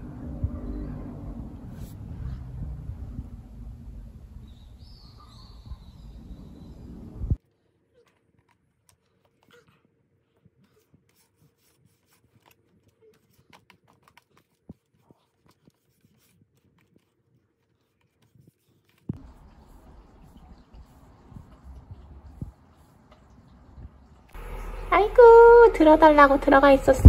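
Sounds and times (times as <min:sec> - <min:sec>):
small clicks and rustles: 0:07.9 - 0:24.0.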